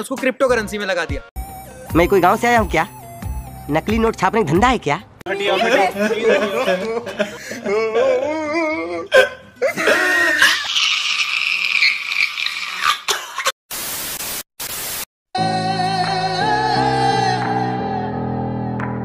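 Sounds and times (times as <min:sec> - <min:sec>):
man wailing and sobbing: 0:05.3 - 0:10.7
static hiss bursts: 0:13.7 - 0:15.1.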